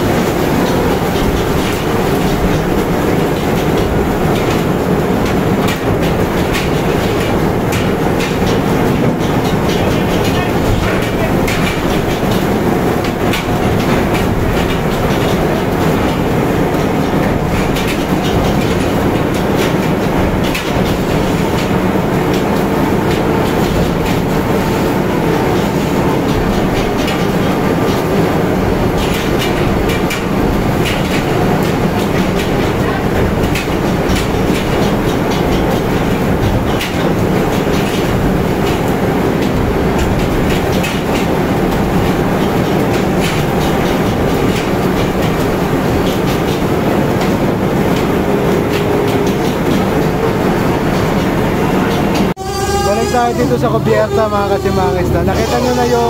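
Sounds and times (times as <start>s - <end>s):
machinery rumble: 0.0s - 56.0s.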